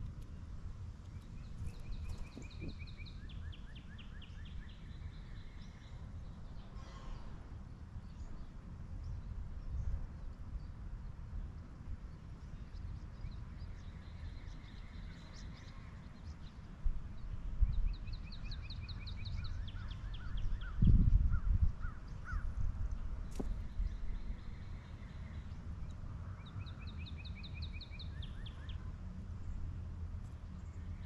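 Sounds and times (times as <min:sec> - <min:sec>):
songbirds singing: 0:00.0 - 0:31.0.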